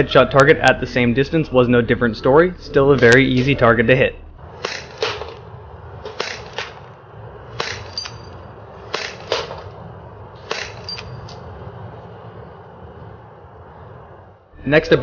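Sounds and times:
airsoft pistol firing: 4.6s - 5.4s, 6.1s - 6.9s, 7.5s - 8.0s, 8.9s - 9.7s.

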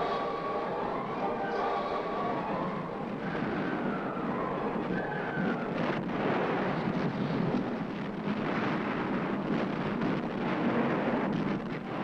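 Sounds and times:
rumble of explosions: 3.0s - 12.0s.

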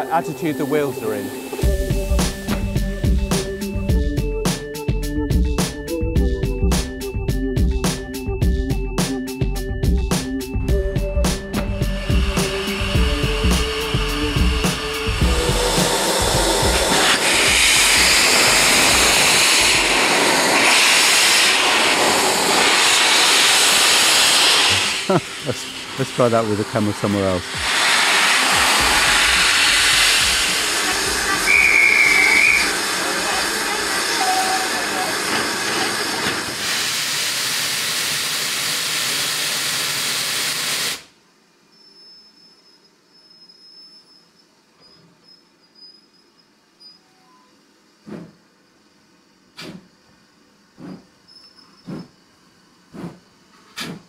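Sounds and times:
steam hissing from locomotive: 0.0s - 3.8s, 11.4s - 41.2s, 48.0s - 48.4s, 49.5s - 50.0s, 50.8s - 54.0s
low rumble: 11.7s - 19.2s.

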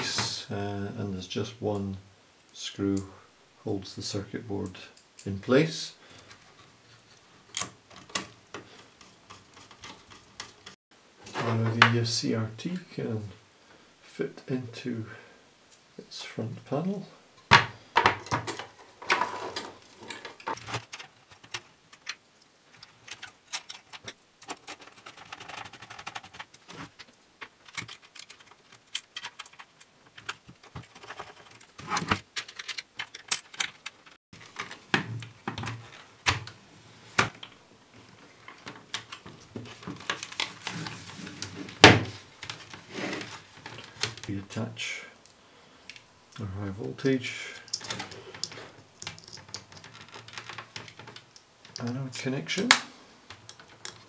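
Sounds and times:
plastic parts clicking and knocking: 7.4s - 10.8s, 17.5s - 36.6s, 37.2s - 44.3s, 47.6s - 54.0s.

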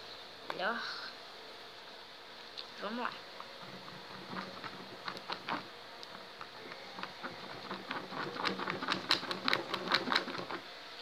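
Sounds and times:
slime being stirred: 3.3s - 10.7s.

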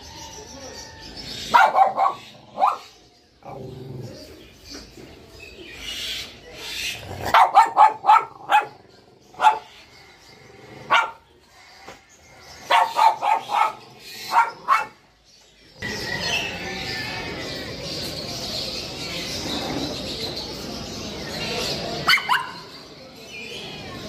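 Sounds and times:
dog barking: 1.5s - 3.0s, 7.2s - 8.8s, 9.4s - 9.7s, 10.9s - 11.2s, 12.7s - 15.0s, 22.0s - 22.7s.

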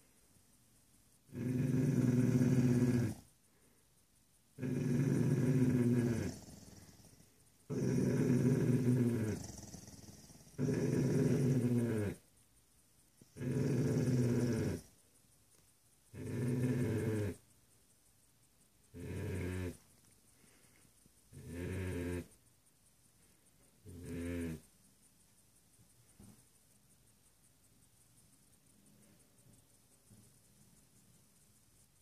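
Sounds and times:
dog growling: 1.3s - 3.2s, 4.6s - 12.2s, 13.3s - 14.9s, 16.1s - 17.4s, 18.9s - 19.8s, 21.3s - 22.4s, 23.9s - 24.6s.

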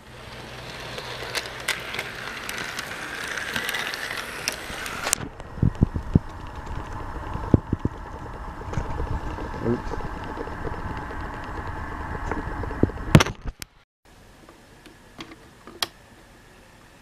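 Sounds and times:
model train motor whirring: 0.0s - 7.9s
wheels clicking over track joints: 0.0s - 13.3s.

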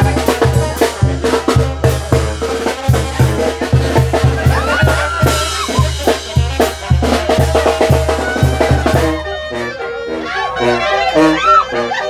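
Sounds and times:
bass drum and snare beat: 0.0s - 9.4s
brass band playing: 0.0s - 12.0s.

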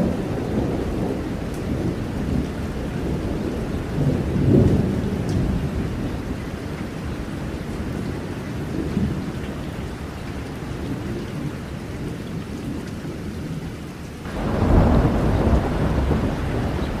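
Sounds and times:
thunder rumbling: 0.0s - 9.3s, 14.2s - 17.0s
rain: 0.0s - 17.0s.

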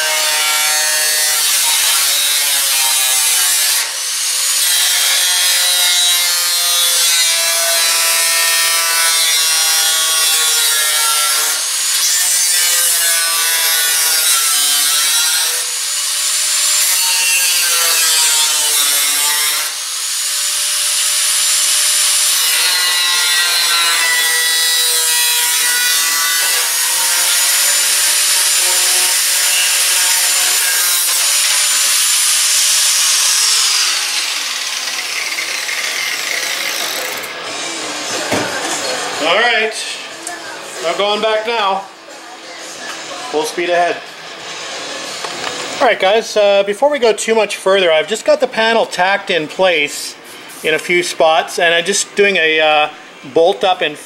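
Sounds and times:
angle grinder cutting metal: 0.0s - 38.2s.

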